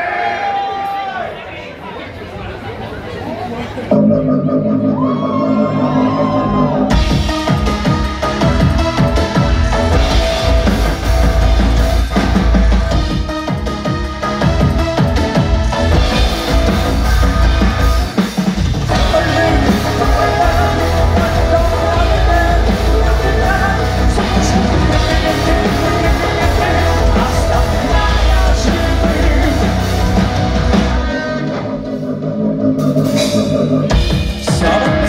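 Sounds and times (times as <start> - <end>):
bass guitar: 3.9 - 35.0
drum kit: 4.0 - 35.0
electric guitars: 4.1 - 32.2
person singing amplified: 18.9 - 35.0.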